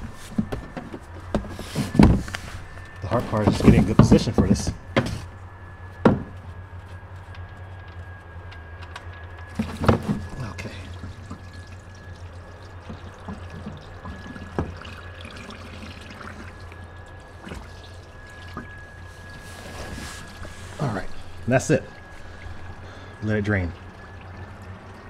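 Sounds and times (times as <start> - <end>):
oil pouring into drain pan: 9.5 - 19.4, 20.2 - 25.0
oil splashing: 9.5 - 25.0.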